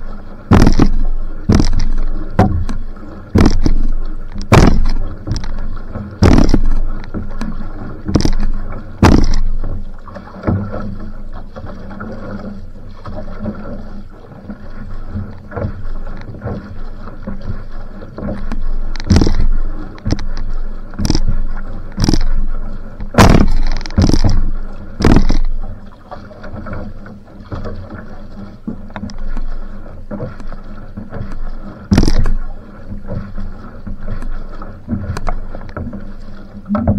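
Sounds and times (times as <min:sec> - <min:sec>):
water splashing along hull: 0:00.0 - 0:36.9
loud sharp paddle hits: 0:04.5 - 0:05.0, 0:23.2 - 0:24.4.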